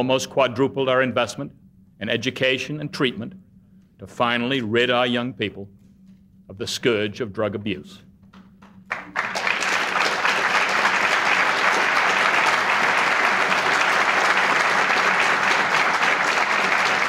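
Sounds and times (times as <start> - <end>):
audience applause: 8.9 - 17.0.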